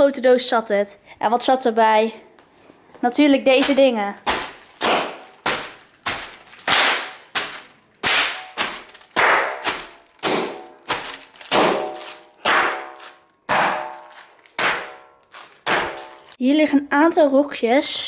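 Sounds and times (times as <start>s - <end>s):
bubble wrap popping underfoot: 3.5s - 16.4s.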